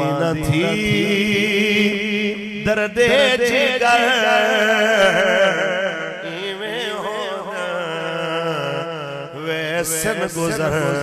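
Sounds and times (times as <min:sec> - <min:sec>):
man chanting: 0:00.0 - 0:11.0.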